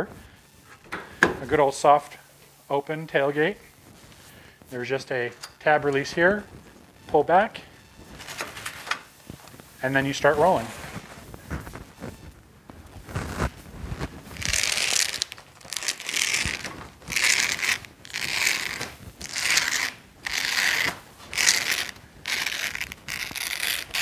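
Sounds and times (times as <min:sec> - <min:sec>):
vinyl cover crinkling: 0:03.1 - 0:24.0
hook-and-loop strips tearing: 0:14.4 - 0:24.0.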